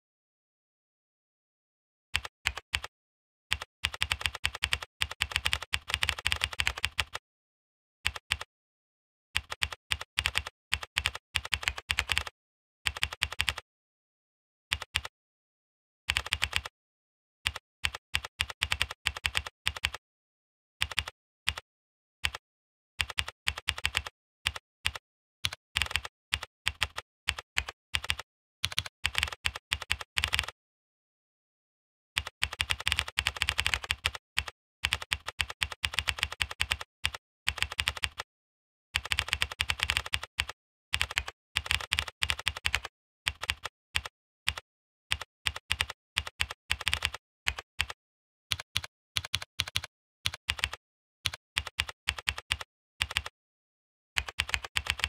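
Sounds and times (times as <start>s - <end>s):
computer keyboard typing: 2.2s - 2.9s, 3.5s - 7.2s, 9.4s - 12.3s, 12.9s - 13.6s, 14.7s - 15.1s, 16.1s - 16.7s, 17.5s - 20.0s, 20.8s - 21.6s, 23.0s - 30.6s, 32.2s - 38.3s, 39.0s - 53.3s, 54.2s - 55.0s.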